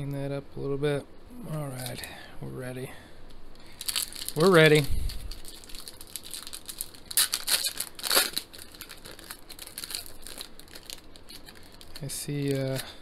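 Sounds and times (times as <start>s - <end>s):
foil wrapper tearing and crinkling: 3.7s - 13.0s.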